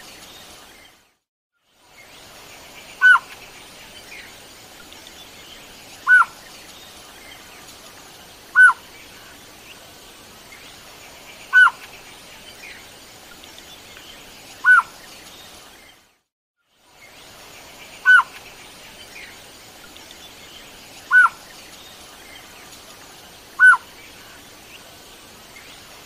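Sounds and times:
faint background hiss: 0.0 - 26.0
bird call rising and falling: 6.0 - 6.3, 8.6 - 8.8, 14.6 - 14.9, 21.1 - 21.4, 23.6 - 23.9.

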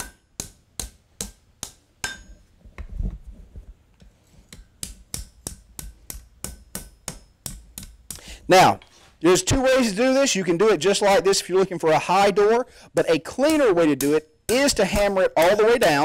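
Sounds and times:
hammer striking metal on anvil: 0.0 - 2.5, 4.5 - 8.2.

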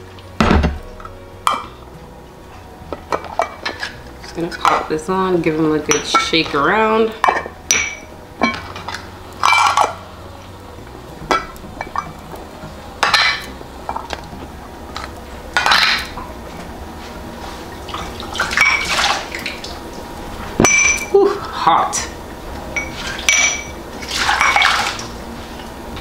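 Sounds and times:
glass and metal lids clinking: 2.9 - 5.0, 5.9 - 10.0, 11.2 - 12.2, 13.0 - 14.2, 14.9 - 16.2, 17.9 - 19.2, 20.6 - 21.4, 22.7 - 25.1
water sloshing in glass jars: 17.8 - 19.8, 22.7 - 25.2.

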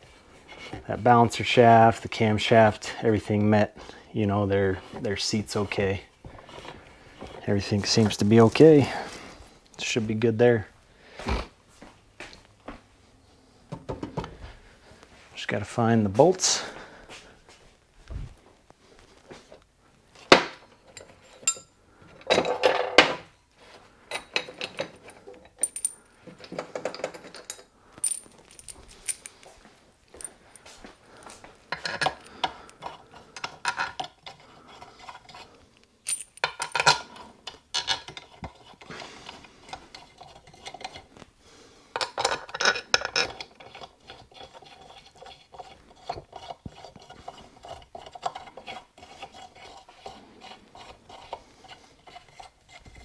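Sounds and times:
metal bolts and washers clinking: 20.3 - 23.2, 24.1 - 29.5, 31.7 - 34.4, 36.0 - 38.6, 42.0 - 43.8.

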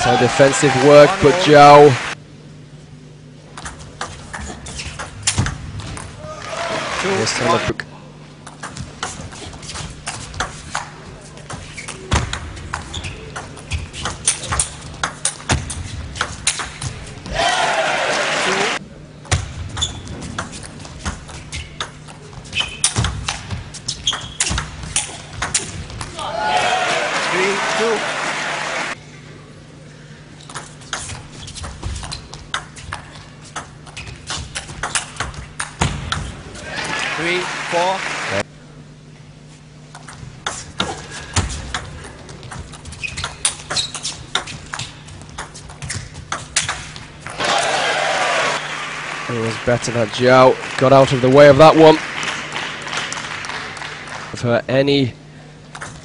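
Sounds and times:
crowd applause: 0.0 - 2.2, 6.3 - 7.7, 17.3 - 18.8, 26.2 - 29.0, 36.6 - 38.4, 47.3 - 54.4
shoes squeaking on floor: 11.6 - 12.1, 12.7 - 14.6, 19.8 - 20.2, 21.0 - 23.1, 23.7 - 25.1, 30.6 - 34.6, 42.3 - 46.5.

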